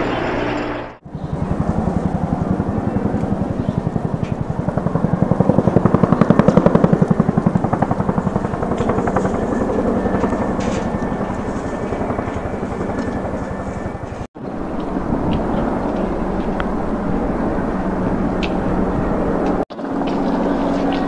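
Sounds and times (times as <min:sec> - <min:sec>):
helicopter rotor beat: 0:00.0 - 0:21.0.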